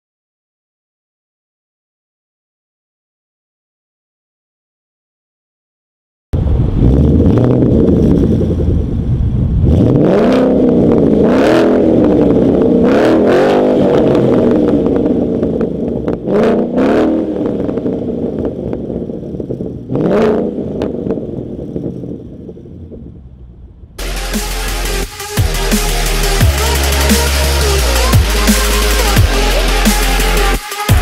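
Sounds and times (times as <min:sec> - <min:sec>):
car engine idling and revving: 0:06.4 - 0:31.0.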